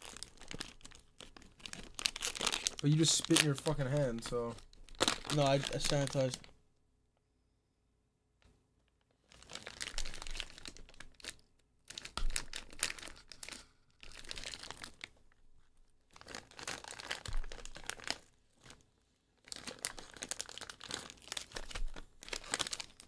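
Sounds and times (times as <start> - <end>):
plastic wrapper crinkling: 0.0 - 6.5, 9.1 - 18.8, 19.4 - 23.0
plastic wrapper tearing: 0.0 - 6.5, 9.2 - 15.2, 16.1 - 18.8, 19.4 - 23.0.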